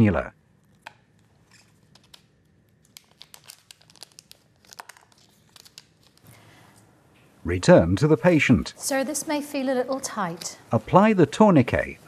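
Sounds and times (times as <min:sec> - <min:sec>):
packaging crinkling: 0:00.8 - 0:06.5.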